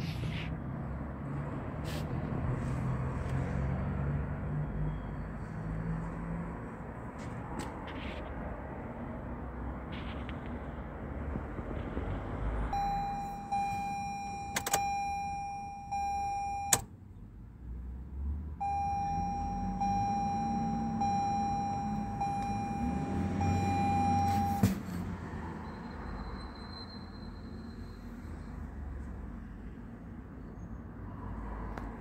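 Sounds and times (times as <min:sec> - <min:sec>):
dashboard warning chime: 0:12.7 - 0:16.9, 0:18.6 - 0:24.8.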